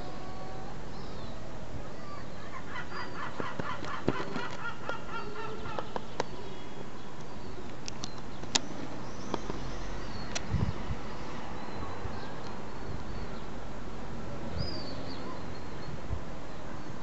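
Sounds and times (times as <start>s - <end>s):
gulls calling: 1.9s - 6.7s.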